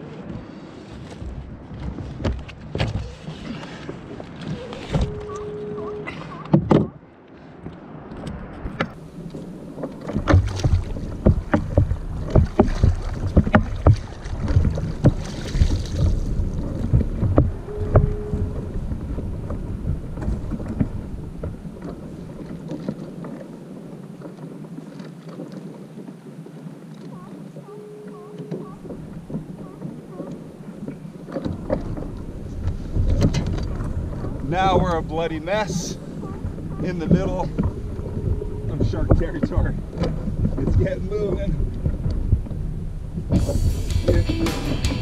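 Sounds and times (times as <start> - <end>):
water splashing against a kayak: 0.0 - 44.4
knocks and thuds against hull: 0.2 - 5.4, 6.4 - 7.0, 9.8 - 23.4, 28.4 - 35.1, 35.8 - 44.2.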